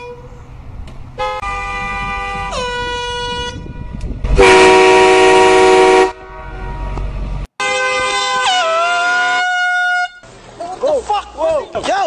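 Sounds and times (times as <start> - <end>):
air horn blast: 1.2 - 10.2
loud train horn blast: 1.2 - 10.2.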